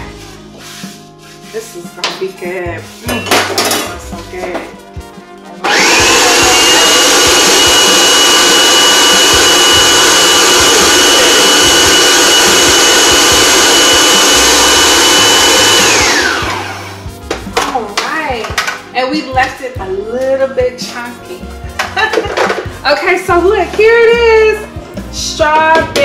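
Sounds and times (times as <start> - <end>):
food processor motor whine: 5.6 - 17.0.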